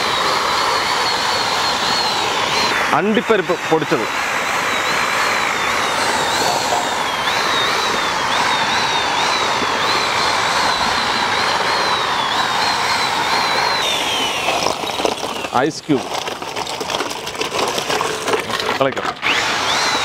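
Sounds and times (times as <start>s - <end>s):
electric mixer motor whine: 0.0s - 20.0s
thick mix sloshing: 14.5s - 19.2s.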